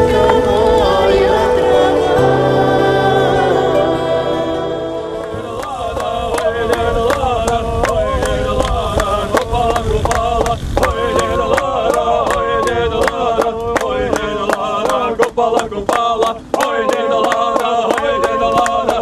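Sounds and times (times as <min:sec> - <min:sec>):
song with sung melody and beat: 0:00.0 - 0:06.6.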